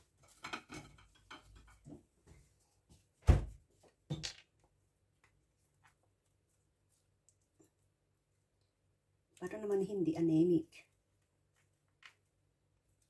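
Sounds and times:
small clicks and rustles: 3.9s - 7.9s, 11.1s - 13.0s.

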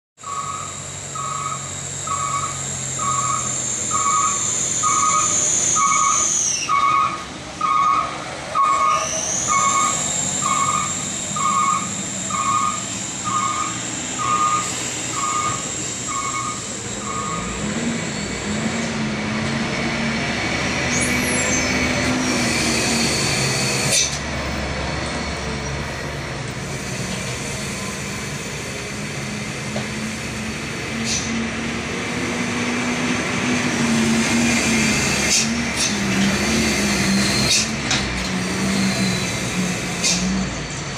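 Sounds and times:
diesel trucks passing: 0.2s - 40.9s
electronic beeps: 8.6s - 17.5s.

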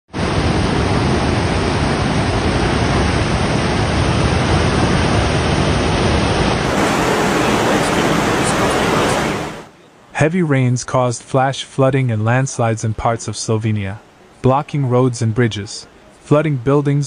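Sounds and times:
flood water rushing: 1.6s - 9.8s.

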